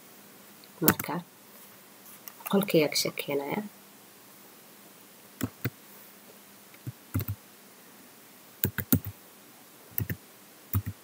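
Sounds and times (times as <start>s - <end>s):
keyboard key clicks: 6.8s - 7.4s, 10.0s - 10.2s.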